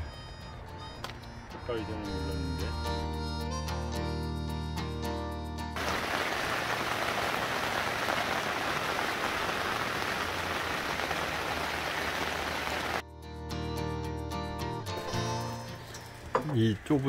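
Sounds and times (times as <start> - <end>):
rain falling: 5.8 - 13.0.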